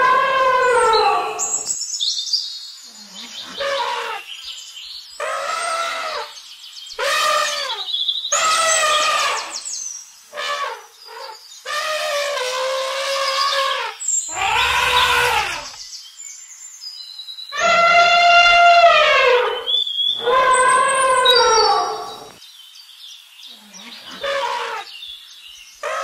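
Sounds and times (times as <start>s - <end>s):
elephant trumpeting: 0.0s - 1.7s, 3.5s - 4.2s, 5.2s - 6.3s, 8.4s - 9.6s, 10.4s - 15.8s, 17.6s - 22.4s, 24.1s - 24.9s.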